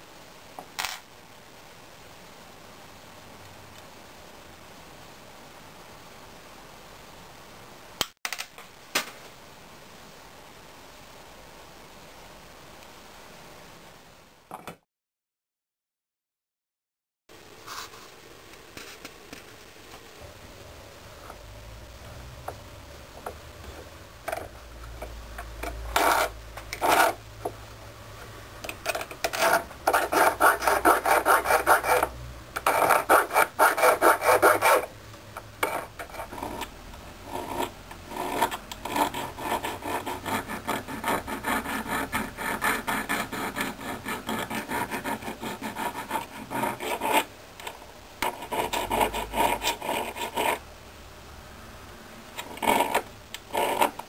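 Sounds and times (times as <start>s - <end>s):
hand file rasping on metal: 29.4s - 34.9s, 37.3s - 47.3s.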